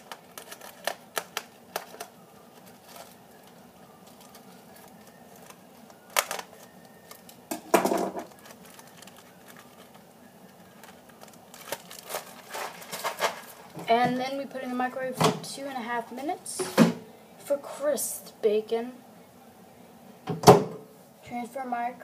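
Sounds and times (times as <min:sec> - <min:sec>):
crinkly plastic handling: 0:00.0 - 0:15.4.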